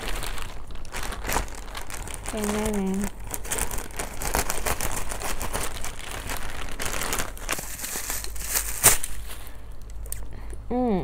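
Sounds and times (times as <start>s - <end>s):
plastic bag crinkling: 0.0s - 10.3s
scissors snipping plastic: 7.6s - 9.2s.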